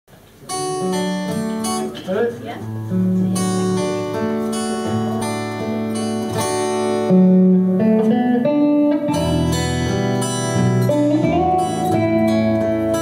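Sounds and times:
electric guitar: 0:00.2 - 0:13.0
strummed acoustic guitar: 0:00.4 - 0:13.0
electric bass guitar: 0:00.7 - 0:13.0.

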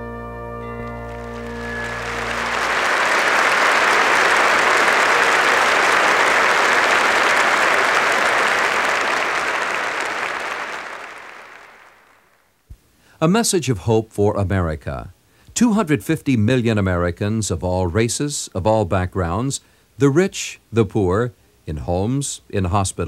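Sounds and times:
congregation applauding: 0:00.8 - 0:12.5.

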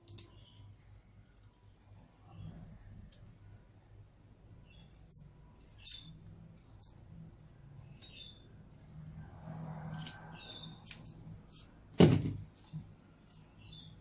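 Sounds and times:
knife cutting radishes: 0:09.8 - 0:13.9
thump: 0:12.0 - 0:12.4.

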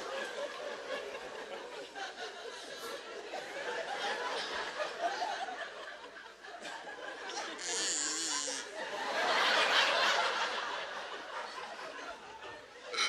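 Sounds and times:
audience laughing softly: 0:00.0 - 0:12.9.

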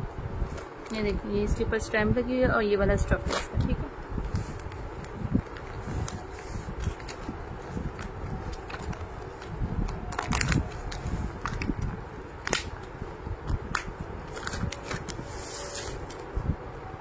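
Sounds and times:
plastic packaging crinkling: 0:04.6 - 0:12.9, 0:13.7 - 0:16.3.

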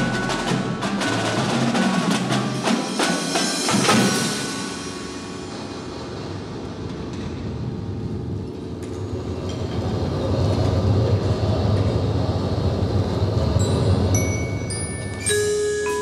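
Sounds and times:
ringing percussion hit: 0:00.0 - 0:06.4
low rumbling drum roll: 0:00.0 - 0:14.7
ringing mallet notes: 0:13.6 - 0:16.0.

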